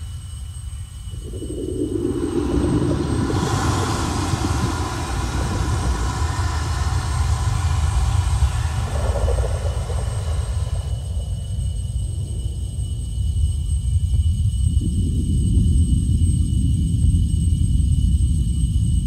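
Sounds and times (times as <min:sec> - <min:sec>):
steady rushing hiss: 0:00.0 - 0:14.8
deep underwater rumble: 0:00.5 - 0:19.0.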